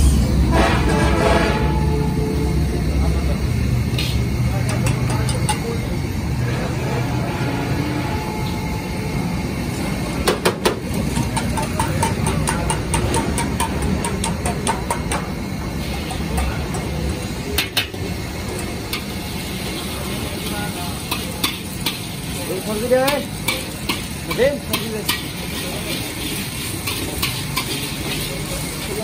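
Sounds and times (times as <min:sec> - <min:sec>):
metal ladle clanking on wok: 0:10.4 - 0:15.3, 0:20.4 - 0:22.1, 0:22.8 - 0:29.0.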